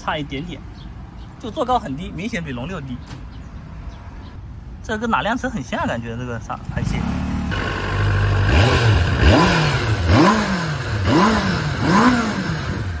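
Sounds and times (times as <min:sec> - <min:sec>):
motorcycle engine idling and revving: 0:06.3 - 0:13.0.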